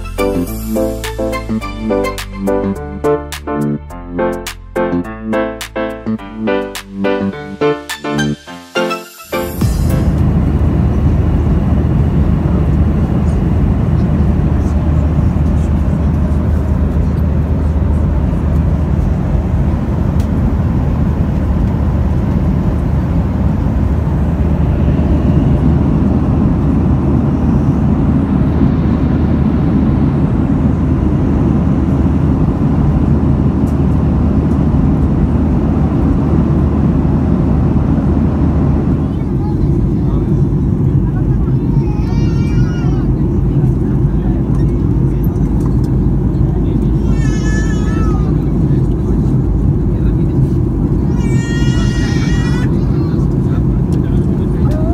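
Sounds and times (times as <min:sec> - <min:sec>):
airplane cabin drone: 0:00.0 - 0:54.9.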